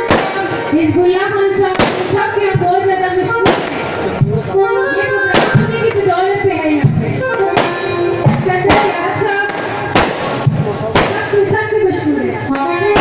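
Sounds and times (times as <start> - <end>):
loud music with reedy melody: 0.0 - 0.8, 3.2 - 10.6, 12.4 - 13.0
fireworks bursting with bangs: 0.0 - 4.5, 5.3 - 13.0.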